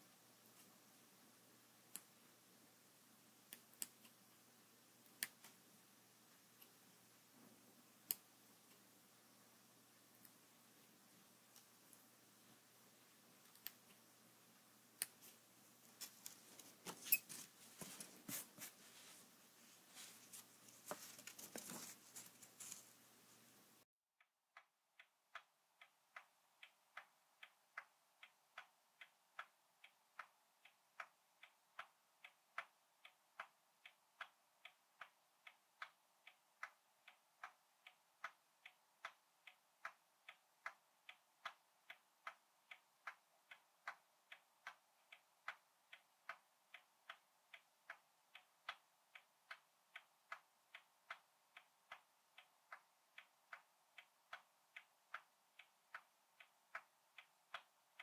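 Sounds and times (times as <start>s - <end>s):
clock ticking: 24.2s - 58.0s.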